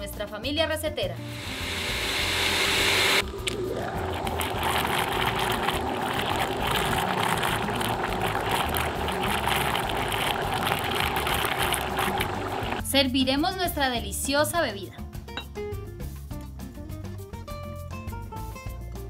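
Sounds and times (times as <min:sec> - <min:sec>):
blender running: 0:01.2 - 0:12.8.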